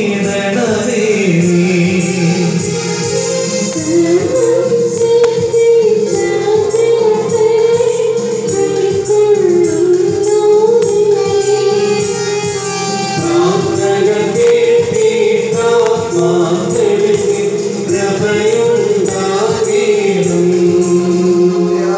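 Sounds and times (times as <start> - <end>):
tambourine-like percussion beat: 0.0 - 21.4
electronic keyboard: 0.0 - 21.9
woman and man singing: 13.2 - 21.9.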